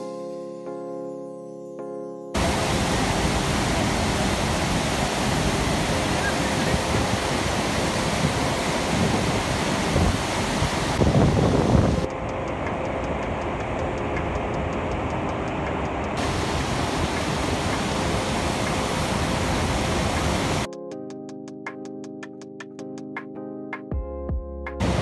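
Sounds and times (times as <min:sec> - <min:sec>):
waterfall crashing: 0:02.4 - 0:12.1, 0:16.2 - 0:20.7.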